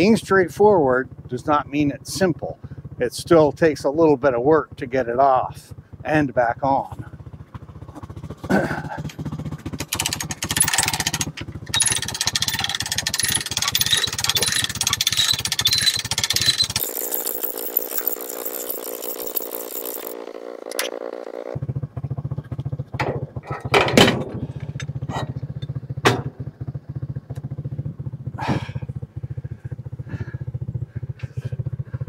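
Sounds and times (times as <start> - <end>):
atv engine idling: 0.0 - 32.0
metal clanks and knocks: 9.7 - 18.6, 22.5 - 26.4.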